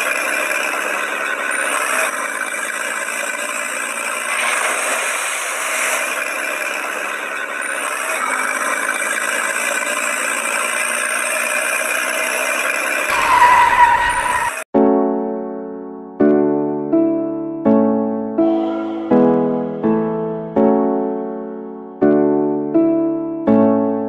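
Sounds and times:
tractor engine idling: 0.0s - 14.7s
brief higher tone: 18.4s - 20.0s.

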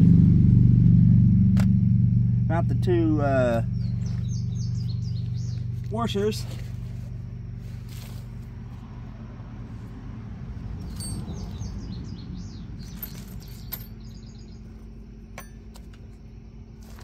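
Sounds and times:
steady low hum: 0.0s - 17.0s
small birds chirping: 3.2s - 7.8s, 10.8s - 15.2s.

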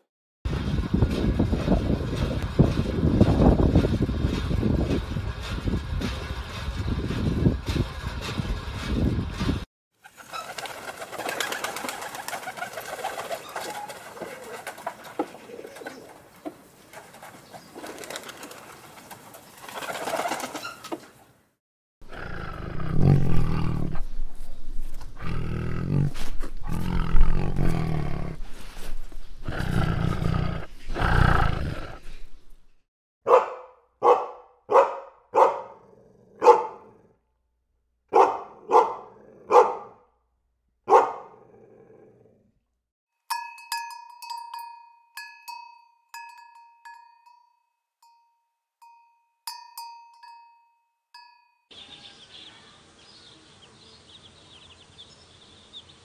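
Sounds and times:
wings flapping: 0.6s - 16.2s, 16.9s - 21.2s
pigeons cooing: 10.0s - 16.3s
tiger roaring and growling: 22.0s - 24.3s, 25.0s - 28.6s, 29.4s - 32.2s, 35.8s - 37.2s, 39.0s - 39.6s, 41.3s - 42.6s.

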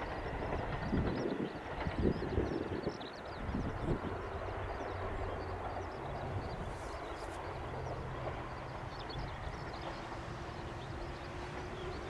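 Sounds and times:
distant diesel train rumble: 0.0s - 12.0s.

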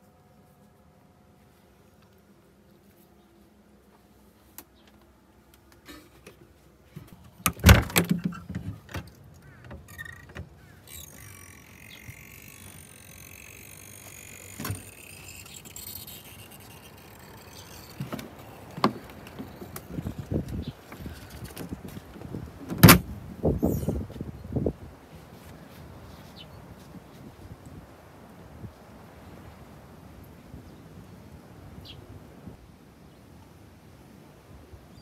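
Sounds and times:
door knocks and clunks: 7.4s - 9.0s, 22.2s - 23.1s.

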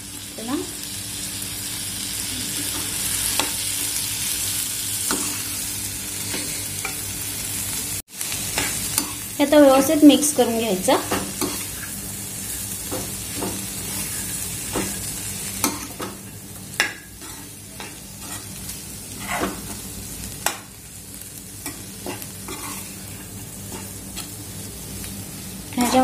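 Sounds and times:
oil sizzling: 0.0s - 26.0s
spoon scraping in pan: 8.5s - 9.2s, 11.1s - 12.6s, 13.5s - 19.8s, 21.6s - 24.4s.

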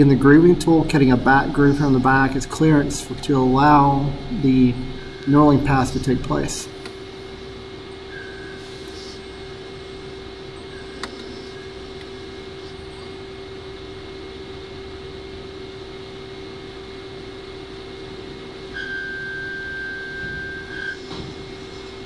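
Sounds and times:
lathe humming: 0.0s - 17.6s
high steady whine: 0.0s - 22.0s.

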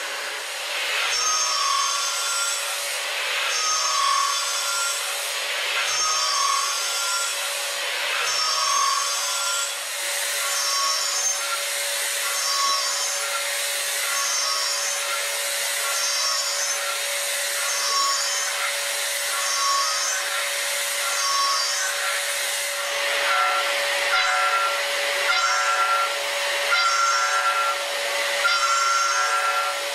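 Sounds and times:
metal cutting hiss: 0.0s - 29.9s
ringing tones of milling metal: 1.1s - 2.8s, 3.5s - 5.1s, 5.8s - 7.5s, 8.2s - 9.8s, 10.4s - 29.9s
high spindle tone: 22.8s - 27.8s, 28.4s - 29.8s.

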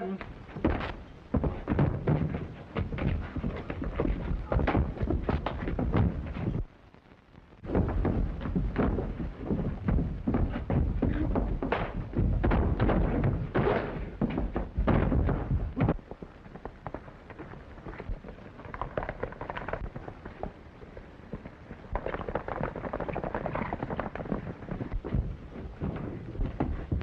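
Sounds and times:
horse hoofbeats galloping: 0.0s - 6.7s, 7.6s - 27.0s
loud dense thumps and bangs: 0.6s - 6.6s, 7.6s - 16.0s.

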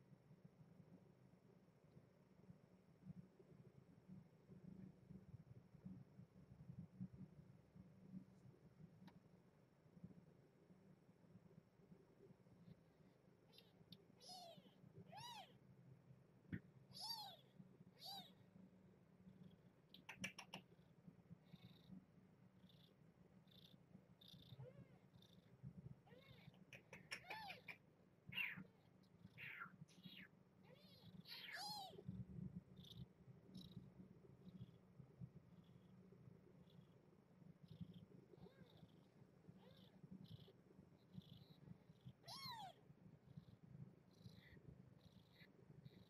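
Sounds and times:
high kitten squeaks: 13.6s - 15.5s, 17.0s - 18.4s, 20.0s - 20.6s, 26.1s - 28.7s, 29.4s - 32.0s, 42.2s - 42.8s
cat purring: 19.3s - 27.7s, 32.6s - 46.0s
faint squeaks: 23.5s - 32.1s.

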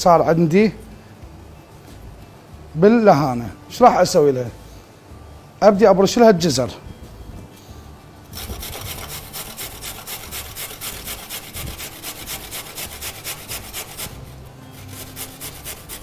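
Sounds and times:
carrot rasping on a grater: 8.3s - 16.0s.

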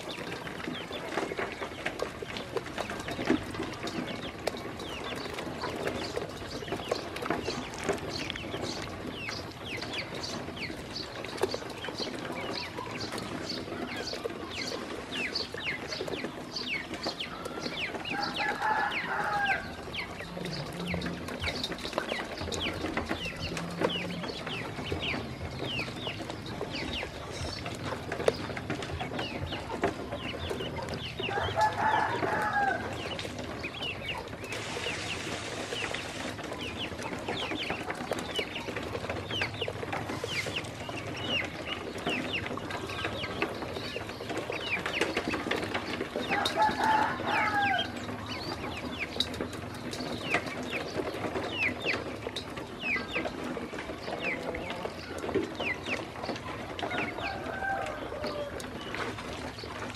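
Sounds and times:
ducklings peeping: 0.0s - 59.9s.

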